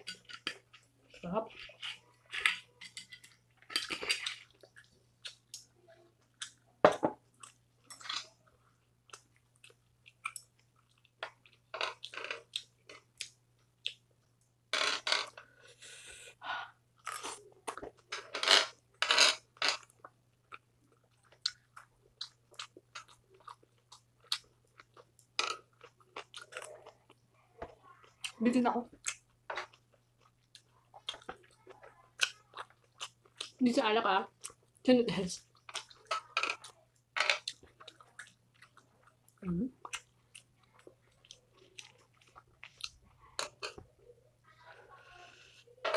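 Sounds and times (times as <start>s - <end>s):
chewing and crunching: 0.0s - 6.7s, 7.3s - 14.4s, 17.0s - 33.6s, 34.3s - 43.9s.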